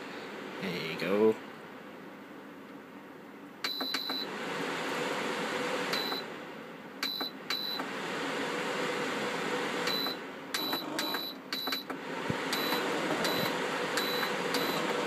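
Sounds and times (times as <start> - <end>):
fan rushing air: 4.1 - 7.0, 7.8 - 15.0
short high beeps: 12.6 - 14.8.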